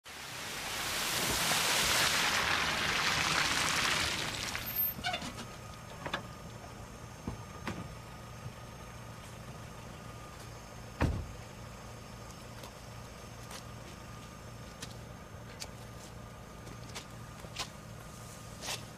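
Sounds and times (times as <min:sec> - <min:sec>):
tyres hissing on wet road: 0:00.0 - 0:05.5.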